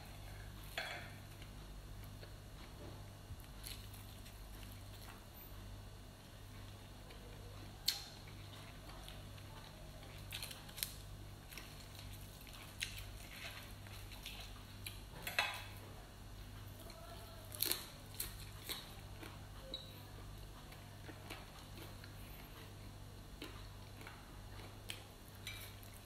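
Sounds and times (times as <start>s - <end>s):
low steady hum: 0.0s - 26.0s
lettuce leaves crunching: 17.5s - 18.9s.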